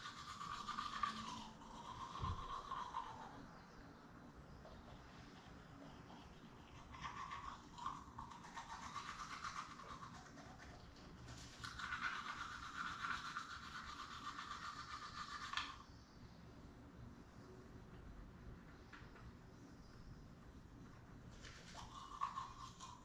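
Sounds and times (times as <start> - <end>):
toothbrush scrubbing teeth: 0.0 - 3.5, 4.6 - 15.8, 21.4 - 23.0.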